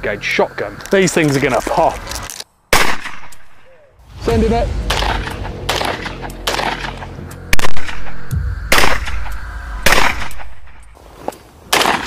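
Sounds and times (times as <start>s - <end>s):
shotgun shots: 2.7s - 3.6s, 4.8s - 10.8s, 11.7s - 12.0s
background music: 4.0s - 10.8s.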